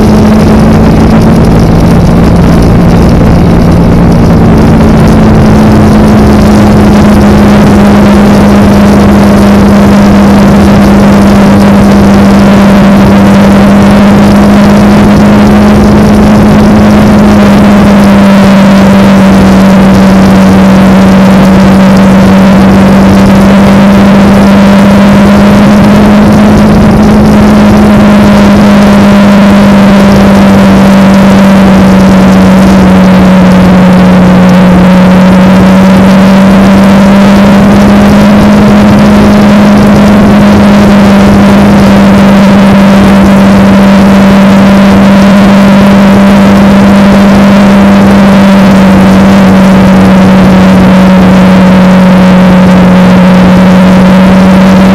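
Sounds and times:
wind noise: 0:00.0 - 0:42.6
motorcycle engine cruising: 0:00.0 - 0:54.9.

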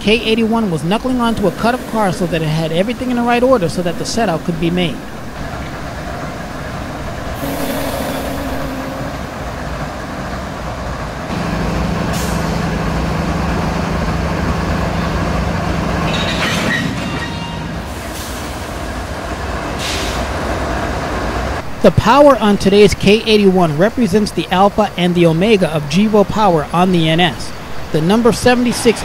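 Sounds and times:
diesel locomotive engine hum: 0:00.0 - 0:16.1
air hisses: 0:01.0 - 0:09.6.

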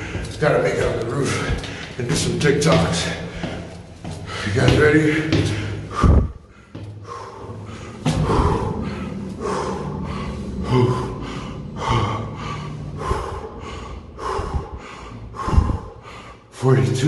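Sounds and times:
man gasping for air: 0:05.3 - 0:16.5.

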